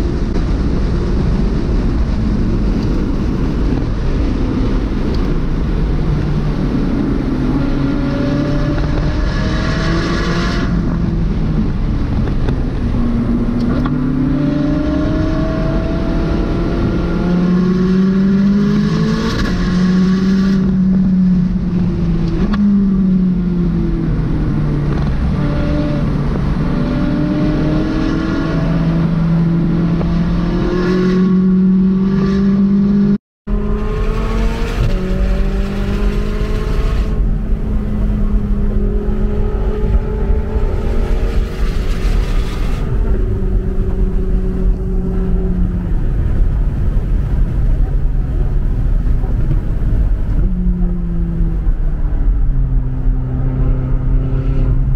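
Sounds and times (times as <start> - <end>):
car engine revving in cabin: 13.1 - 54.9.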